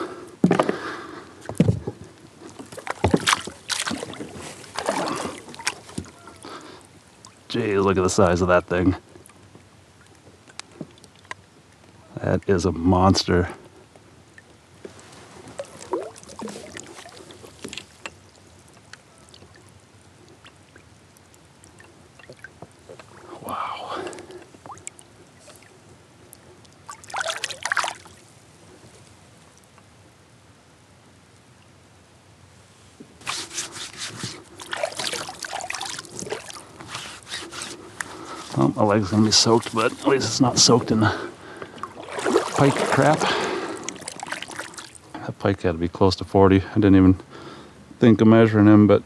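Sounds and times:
water splashing against kayak: 0:01.4 - 0:07.5, 0:14.4 - 0:25.8, 0:26.4 - 0:28.5, 0:33.1 - 0:45.2
water dripping: 0:02.2 - 0:08.4, 0:09.1 - 0:12.5, 0:14.3 - 0:28.5, 0:34.4 - 0:45.2.

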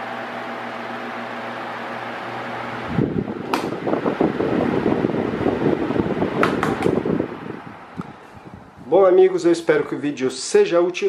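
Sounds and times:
fan airflow buffeting microphone: 0:00.0 - 0:11.0
table fan humming: 0:00.0 - 0:11.0.

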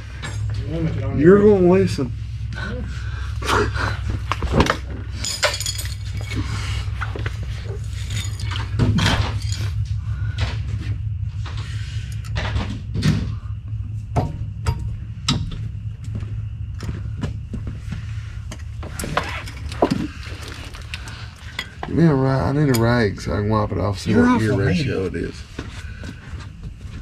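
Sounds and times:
steady low hum: 0:00.0 - 0:27.0
tools knocking and clinking: 0:05.2 - 0:06.4.

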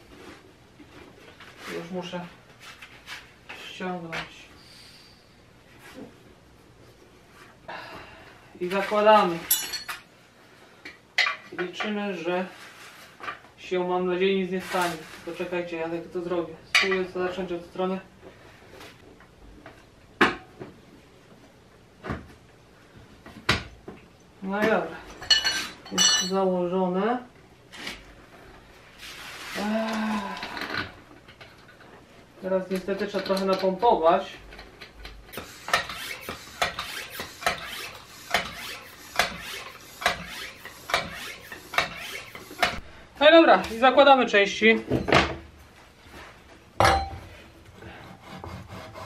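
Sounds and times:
hand pump strokes: 0:35.3 - 0:42.8.

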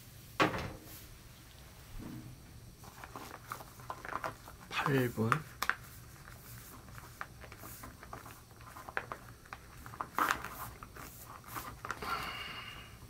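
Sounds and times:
foil pouch crinkling: 0:02.8 - 0:12.3
foil pouch rustling: 0:02.8 - 0:12.3.

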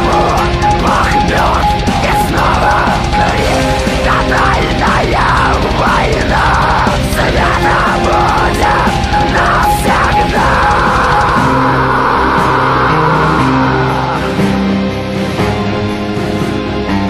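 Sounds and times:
loud black metal music: 0:00.0 - 0:17.0.

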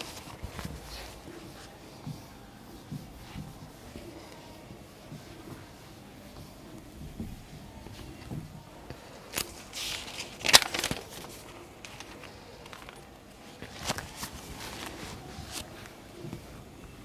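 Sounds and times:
duster scraping whiteboard: 0:00.0 - 0:08.5.

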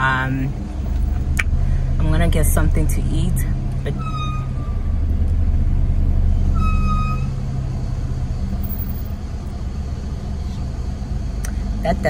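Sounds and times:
car rumble: 0:00.0 - 0:12.0
car brakes squealing: 0:03.8 - 0:05.1, 0:06.3 - 0:07.7.

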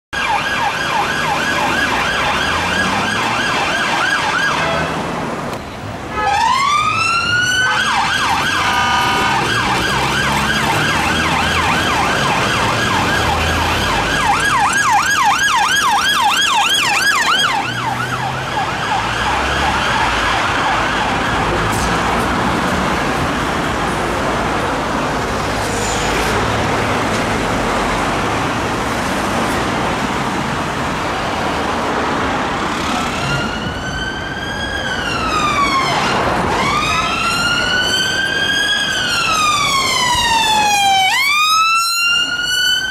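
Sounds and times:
police siren yelp and wail: 0:00.1 - 0:05.0, 0:06.1 - 0:23.7, 0:30.6 - 0:42.9
road traffic noise: 0:00.1 - 0:42.9
siren bull horn blast: 0:06.1 - 0:14.2.

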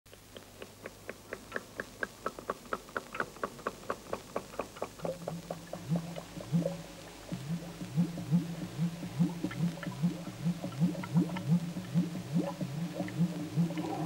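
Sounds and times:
low steady hum: 0:00.1 - 0:14.0
pitched ticking: 0:00.1 - 0:14.0
low rising swoops: 0:13.0 - 0:14.0.

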